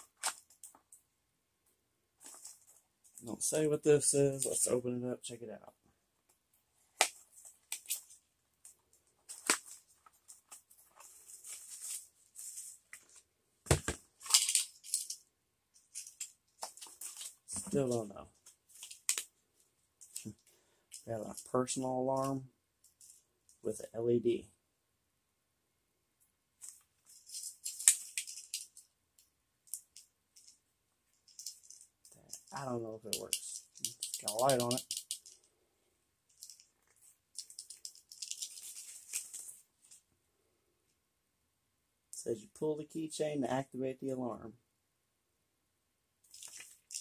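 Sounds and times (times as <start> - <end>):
soft rustles: 7.2 - 13.3, 36.3 - 40.1
cardboard and paper rustling: 9.2 - 15.1
plastic packaging crinkling: 46.3 - 47.0.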